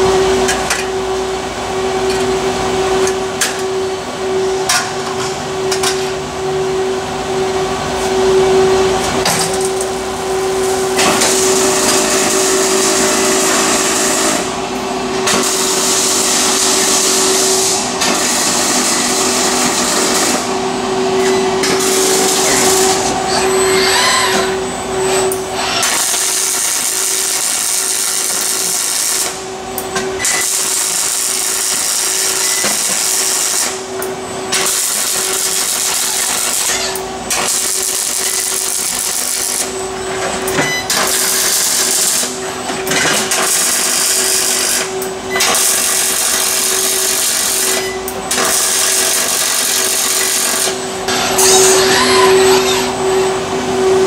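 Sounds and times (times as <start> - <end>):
welding arc crackling and hissing: 15.3 - 20.6, 21.6 - 23.1, 25.7 - 29.5, 30.2 - 39.8, 40.9 - 42.4, 43.2 - 51.6.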